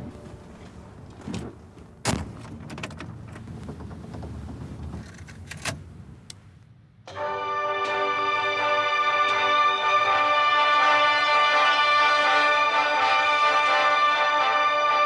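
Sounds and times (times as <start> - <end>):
music: 7.1 - 15.0.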